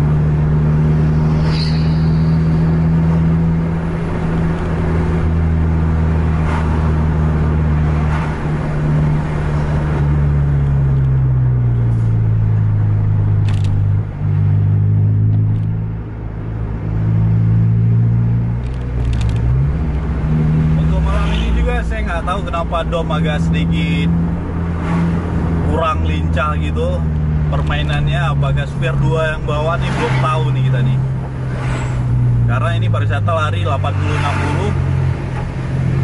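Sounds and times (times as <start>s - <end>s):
engine and road noise drone: 0.0s - 36.0s
sharp click: 18.6s - 19.5s.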